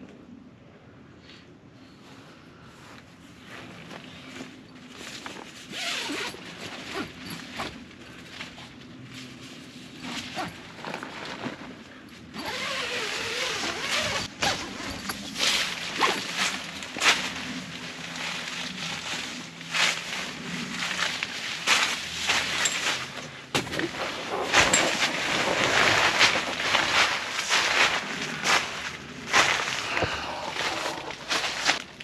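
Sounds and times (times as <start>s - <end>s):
tent fabric snapping and rustling: 4.9s - 32.0s
zipper rasping: 5.7s - 7.8s, 10.0s - 11.5s, 12.3s - 19.7s, 29.2s - 31.8s.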